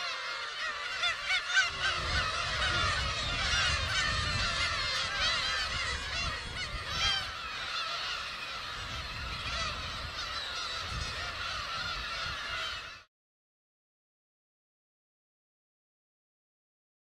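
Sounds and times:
gulls calling: 0.0 - 13.1.

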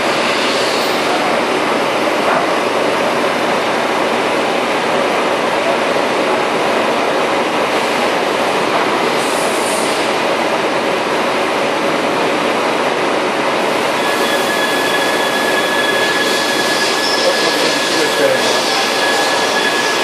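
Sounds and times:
thin high whine: 13.6 - 20.0
machine milling metal: 14.0 - 20.0.

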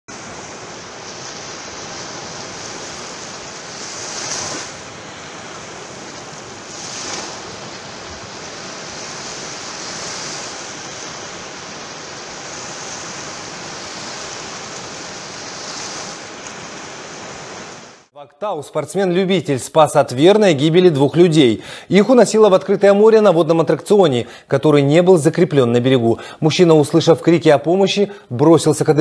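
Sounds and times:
waves washing up a shore: 0.1 - 18.1.

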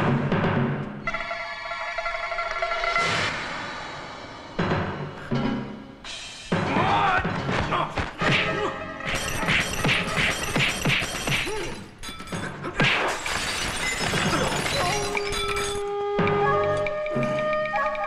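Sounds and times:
glass and wood breaking: 9.0 - 16.0.

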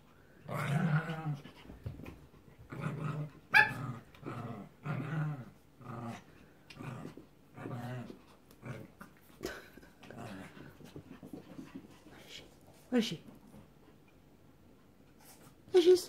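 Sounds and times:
small dog growling: 0.4 - 1.5, 2.7 - 10.8.

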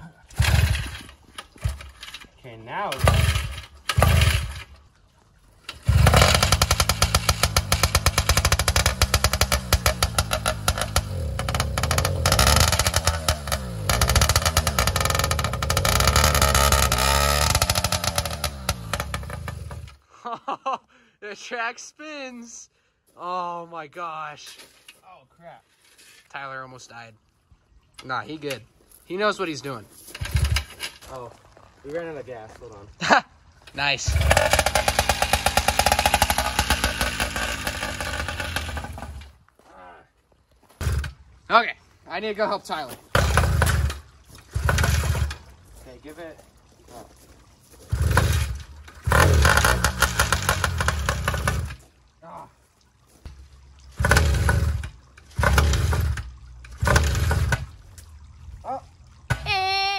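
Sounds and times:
two-stroke engine revving: 0.3 - 1.9, 2.9 - 4.7, 5.8 - 20.0, 30.2 - 30.7, 34.0 - 39.3, 40.8 - 41.2, 43.1 - 45.4, 47.9 - 51.8, 54.0 - 57.8.

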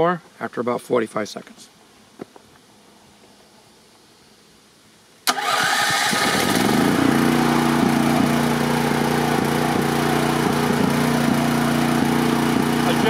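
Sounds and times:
electric starter cranking: 5.3 - 13.0
generator engine running: 5.3 - 13.0.

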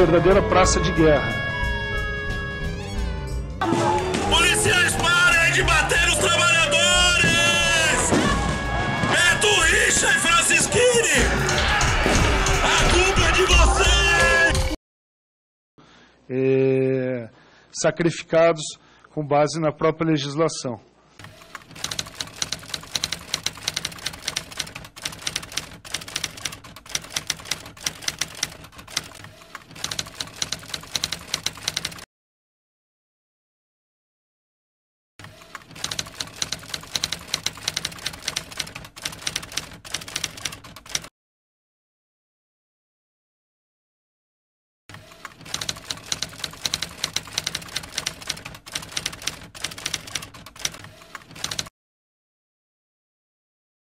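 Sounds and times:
typewriter keys clacking: 21.6 - 32.0, 35.5 - 41.1, 45.2 - 51.7.

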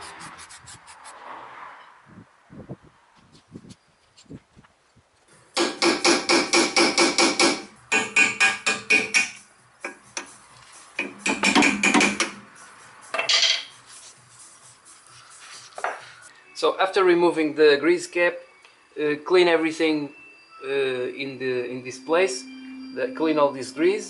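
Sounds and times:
hammer tapping metal grease cap: 5.6 - 10.4, 11.0 - 12.4.

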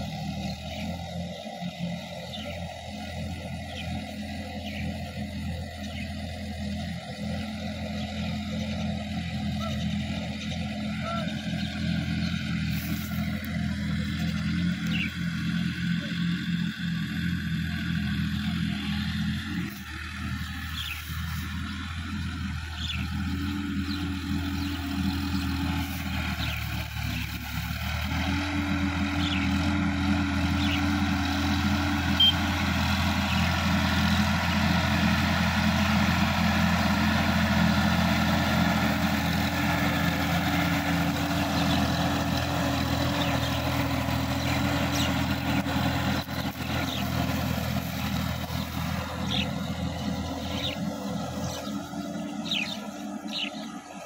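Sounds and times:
tractor diesel engine under load: 0.0 - 54.0
bird chirps: 14.3 - 15.2, 20.6 - 21.5, 29.1 - 29.8, 30.4 - 31.4, 32.1 - 32.6, 43.0 - 54.0.

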